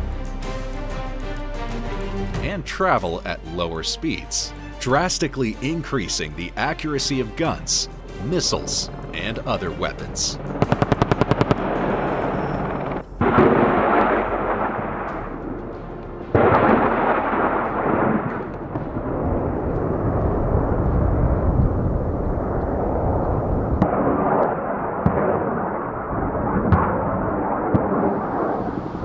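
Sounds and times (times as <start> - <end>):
low rumble: 7.4 - 24.4
sharp cracks: 8.5 - 21.0
rocket blasts: 10.5 - 29.0.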